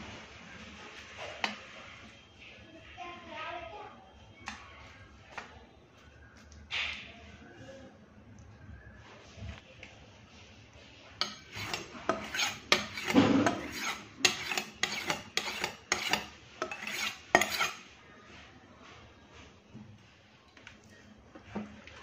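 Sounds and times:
knife scraping on sharpening stone: 0:11.2 - 0:17.8.

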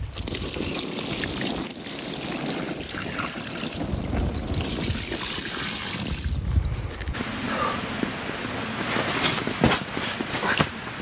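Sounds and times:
water pouring and splashing: 0:00.0 - 0:07.0.

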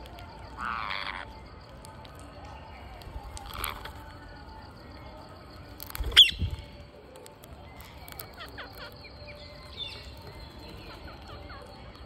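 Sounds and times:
parakeets calling: 0:00.6 - 0:01.3.

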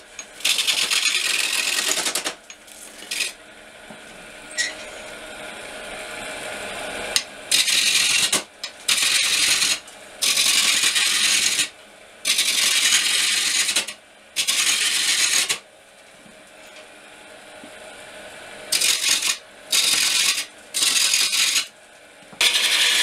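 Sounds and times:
wood lathe running: 0:00.0 - 0:03.4, 0:07.5 - 0:11.6, 0:18.7 - 0:21.7, 0:22.4 - 0:23.0
chisel rasping on wood lathe: 0:22.4 - 0:23.0.

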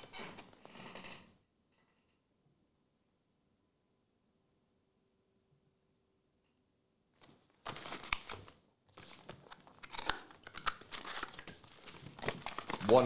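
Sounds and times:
packaging crinkling and tearing: 0:07.6 - 0:13.0
foil packs rustling and crackling: 0:10.8 - 0:13.0.

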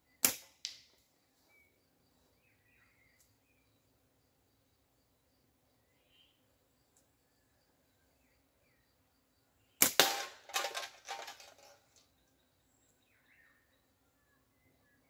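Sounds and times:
slingshot crack: 0:00.2 - 0:01.0, 0:09.8 - 0:11.8
can rattling clatter: 0:10.0 - 0:12.0.

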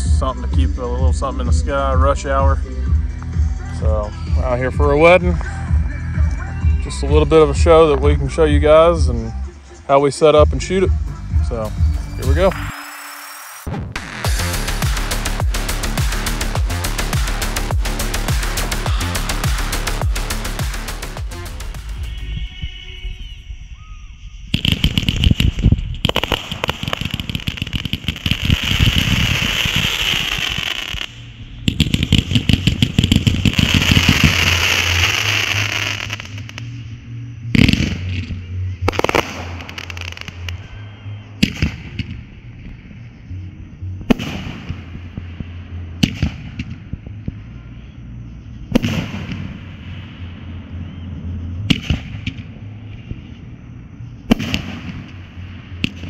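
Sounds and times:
fireworks crackling and popping: 0:11.5 - 0:22.4, 0:24.5 - 0:36.7, 0:37.6 - 0:40.6, 0:48.7 - 0:50.0, 0:54.3 - 0:56.0
loud aerial firework bursts: 0:24.5 - 0:36.6, 0:38.9 - 0:40.6.

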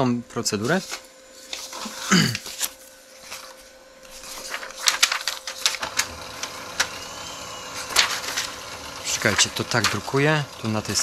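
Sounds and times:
paper rustling: 0:00.6 - 0:11.0
printer tray clicks and clatters: 0:05.2 - 0:07.0, 0:07.8 - 0:11.0.

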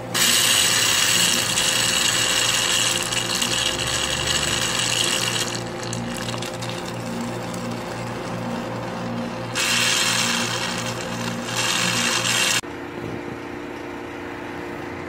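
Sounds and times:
pressurized gas hissing: 0:00.0 - 0:06.4, 0:09.6 - 0:12.6
low machine hum: 0:00.0 - 0:15.0.

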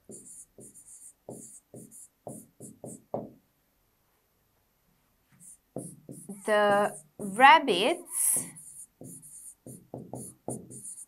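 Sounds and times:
pen strokes on a whiteboard: 0:00.0 - 0:03.1, 0:05.3 - 0:07.4, 0:08.0 - 0:11.0.

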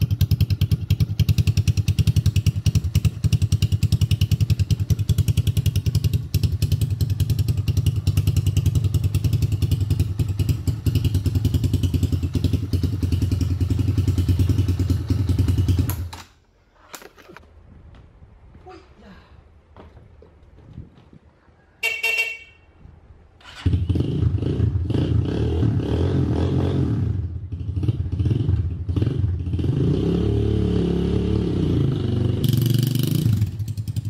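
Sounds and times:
quad bike engine idling: 0:00.0 - 0:16.1.

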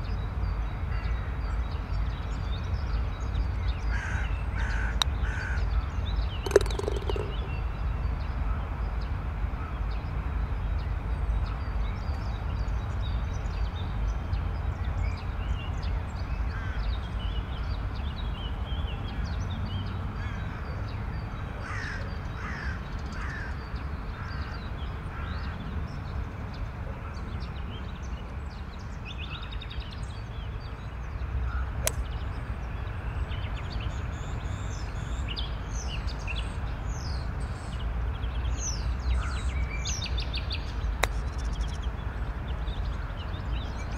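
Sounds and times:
birds calling and chirping: 0:03.7 - 0:08.2, 0:38.6 - 0:43.9
sharp click: 0:06.5 - 0:07.6.

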